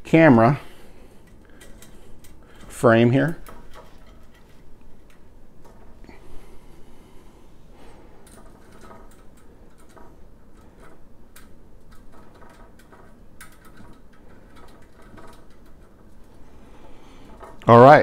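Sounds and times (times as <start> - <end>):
small metal parts clicking: 1.2 - 6.2, 8.2 - 16.4.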